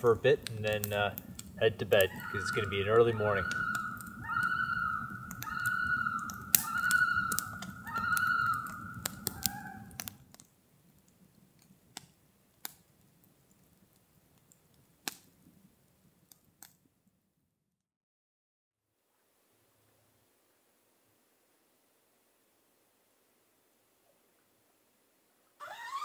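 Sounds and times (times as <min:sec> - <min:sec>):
campfire crackling: 0:00.0 - 0:17.4
loon yodel calls: 0:01.6 - 0:10.1, 0:25.6 - 0:26.0.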